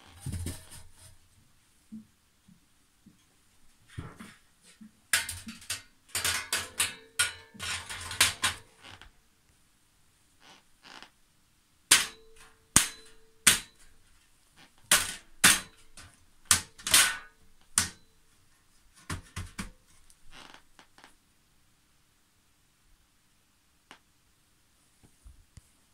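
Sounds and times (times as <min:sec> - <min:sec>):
metal shelf clanking on frame: 0:05.2 - 0:08.7.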